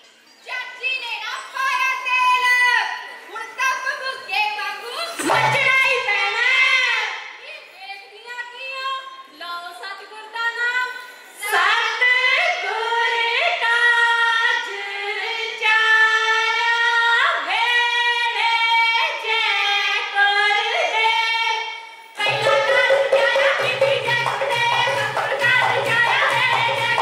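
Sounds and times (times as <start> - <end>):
drums and music: 5.2 - 5.8, 22.2 - 27.0
women singing folk song: 10.1 - 27.0.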